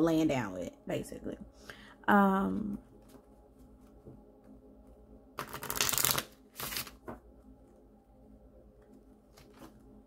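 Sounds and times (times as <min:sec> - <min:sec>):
cards shuffled by hand: 0:05.4 - 0:07.2.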